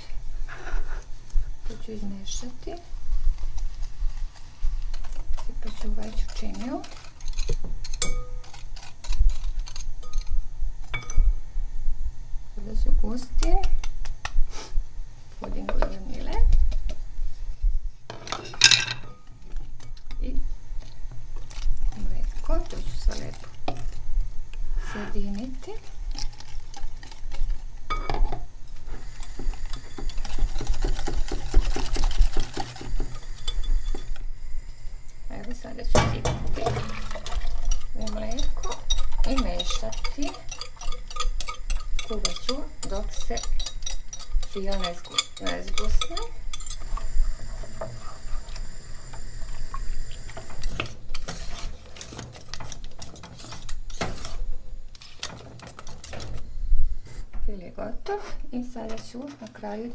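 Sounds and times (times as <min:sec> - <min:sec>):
whisk scraping a pot: 0:03.1 - 0:10.4, 0:28.8 - 0:34.2, 0:36.4 - 0:56.2
whisk tapping glass bowl: 0:36.5 - 0:46.8.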